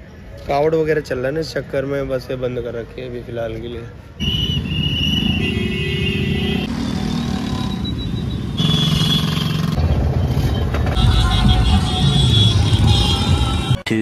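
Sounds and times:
road traffic: 0.0 - 14.0
motorbike engines: 4.1 - 14.0.

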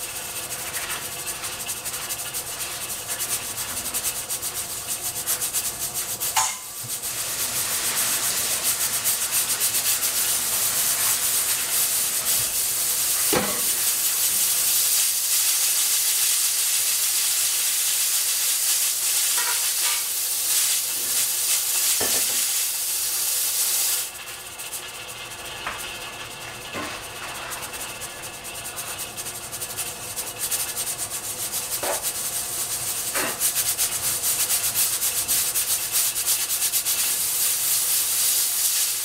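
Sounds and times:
pressure cooker hissing steam: 0.0 - 39.0.

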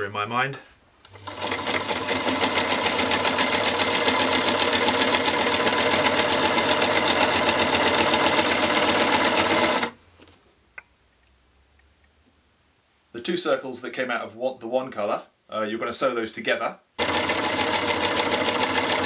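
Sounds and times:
electric sewing machine stitching: 1.1 - 10.0, 17.0 - 19.0.

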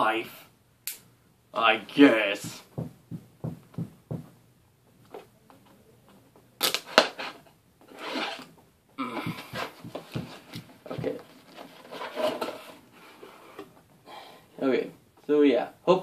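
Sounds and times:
cardboard rubbing and scraping: 7.0 - 8.5, 9.4 - 13.6.

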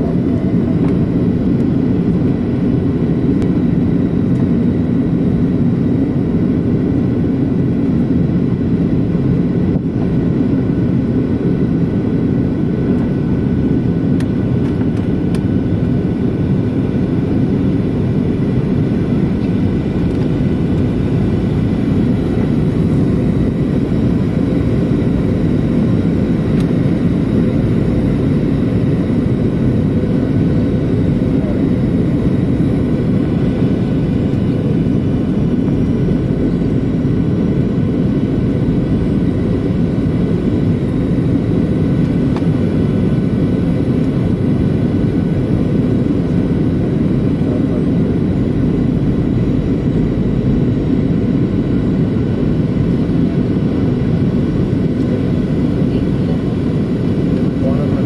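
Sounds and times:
jet cabin low rumble: 0.0 - 58.0.

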